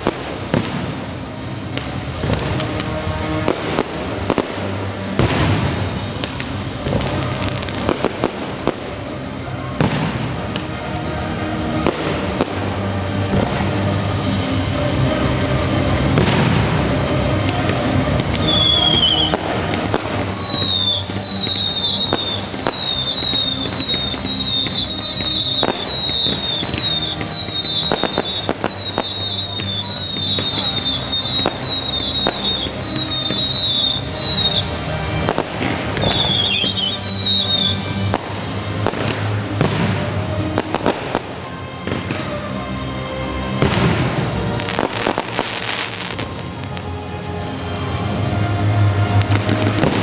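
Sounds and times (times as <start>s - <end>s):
firework bangs and crackles: 0.0s - 50.0s
loud epic-style music: 0.0s - 50.0s
firework whistles falling in pitch: 18.4s - 34.7s, 36.0s - 37.9s.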